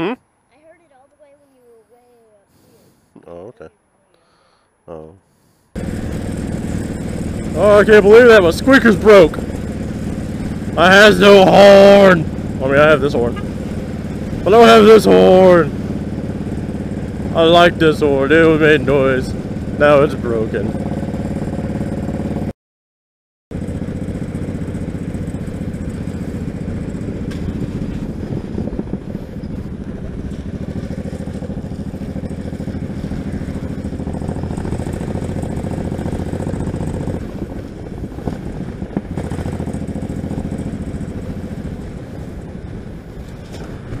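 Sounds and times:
motorcycle engine running: 0:05.8 - 0:22.5, 0:23.5 - 0:44.0
wind noise: 0:25.8 - 0:44.0.

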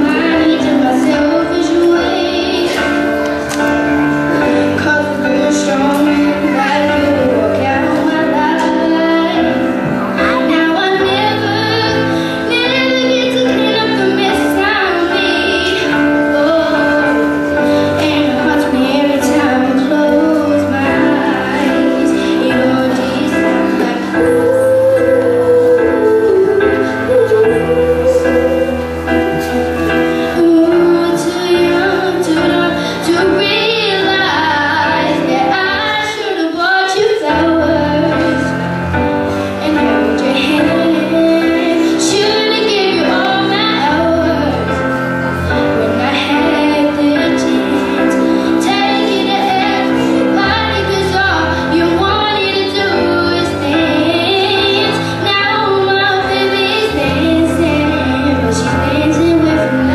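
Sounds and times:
girl singing into microphone: 0:00.0 - 0:59.9
instrumental backing music: 0:00.0 - 0:59.9.

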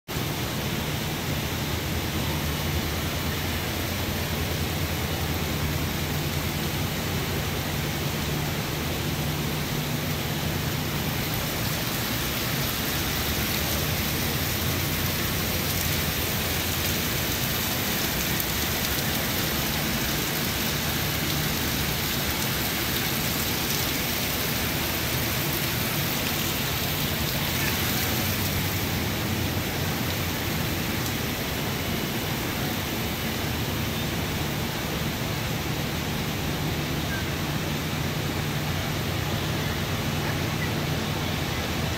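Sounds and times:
water pouring into pond: 0:03.1 - 0:32.9.

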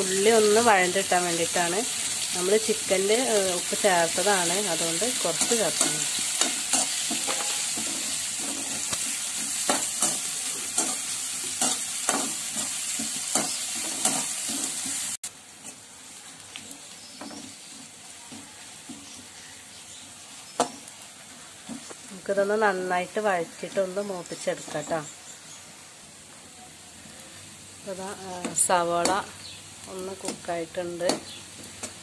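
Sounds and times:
onions sizzling in hot oil: 0:00.0 - 0:32.0
spoon scraping a pan: 0:04.7 - 0:15.8.

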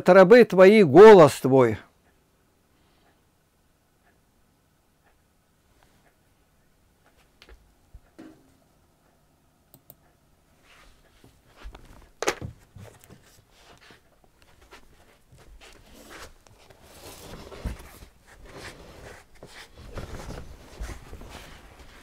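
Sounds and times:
clothes rustling: 0:10.6 - 0:22.0
feet shuffling: 0:10.6 - 0:22.0.

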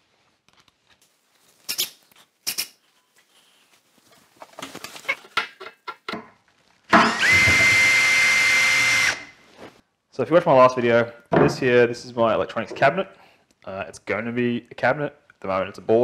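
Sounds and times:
cordless drill whining: 0:07.0 - 0:09.4.

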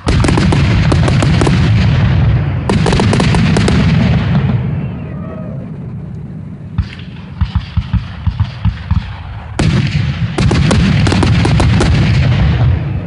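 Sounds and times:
fireworks bursting: 0:00.0 - 0:05.1, 0:06.7 - 0:13.0
rumble: 0:00.0 - 0:13.0.

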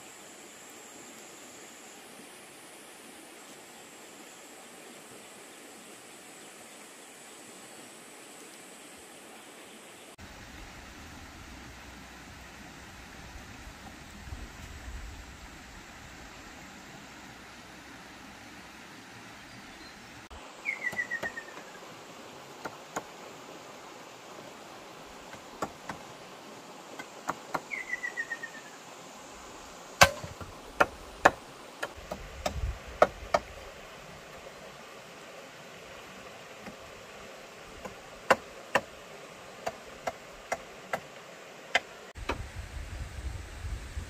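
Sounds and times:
wooden knocks on bamboo ladder: 0:30.0 - 0:33.5.

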